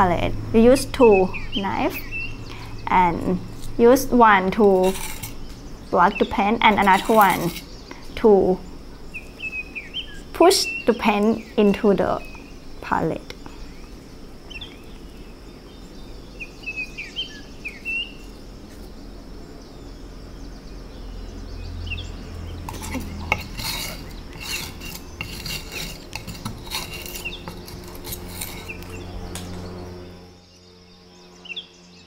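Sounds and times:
palette knives scraping and clicking: 4.6 - 5.4, 6.7 - 7.7, 22.7 - 29.5
bird chirps: 13.4 - 18.4.

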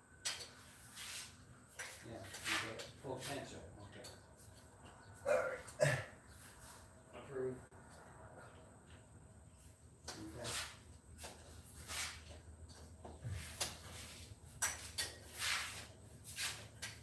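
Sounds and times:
scraping rustling strokes: 0.6 - 3.4, 10.3 - 12.3, 13.3 - 17.0.

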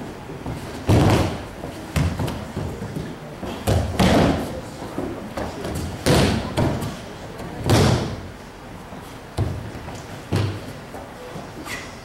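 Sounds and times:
bodies thudding on mat: 0.4 - 2.4.

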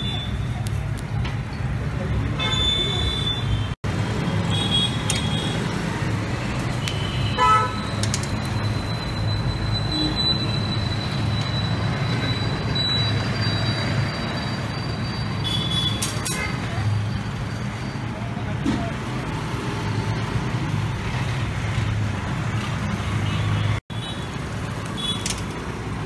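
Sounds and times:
street traffic rumbling: 0.0 - 26.0
vehicle horn toots: 7.3 - 7.8.

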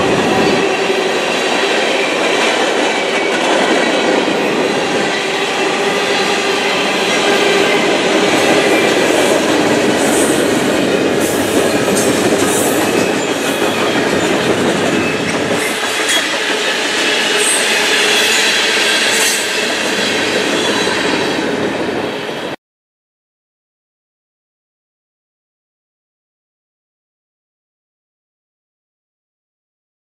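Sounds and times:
clickety-clack over rail joints: 0.0 - 22.4
steel wheels rumbling on rail: 0.0 - 22.6.

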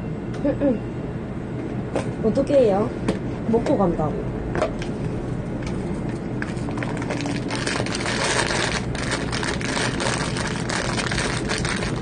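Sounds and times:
low steady hum: 0.0 - 12.0
plastic packaging crinkling: 6.4 - 12.0.

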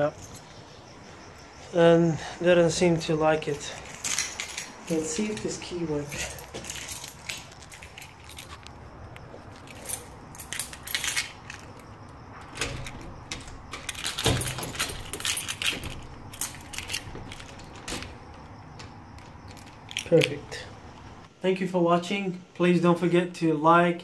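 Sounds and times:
keys jangling in a door lock: 3.0 - 21.2.

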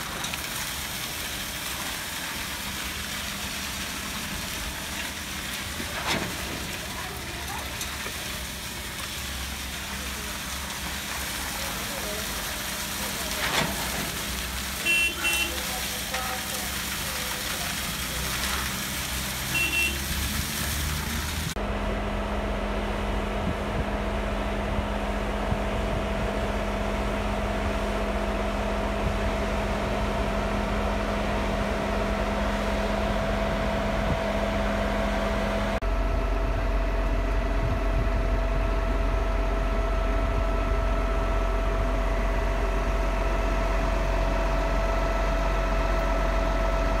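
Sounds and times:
noisy hiss of concrete pour: 0.0 - 21.8, 22.7 - 35.8
diesel engine running: 0.0 - 47.0.

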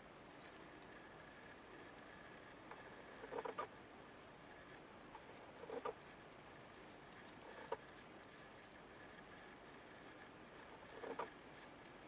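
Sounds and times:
small clicks and light rattles: 5.1 - 12.0.

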